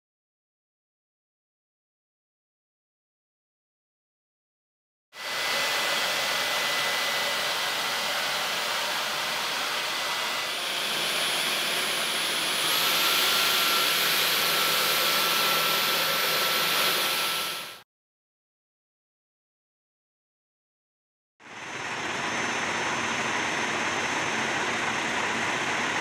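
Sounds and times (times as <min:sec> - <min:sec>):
stick vacuum running: 0:05.2 - 0:17.8, 0:21.4 - 0:26.0.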